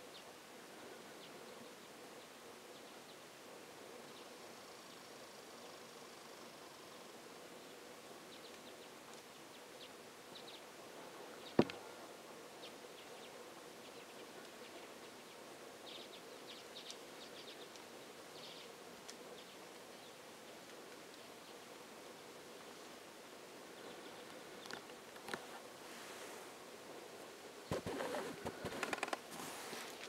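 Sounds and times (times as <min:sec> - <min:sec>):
soft ticks and snaps: 0:08.5 - 0:09.3, 0:16.8 - 0:17.9, 0:19.0 - 0:19.9, 0:20.5 - 0:21.3, 0:24.2 - 0:25.4.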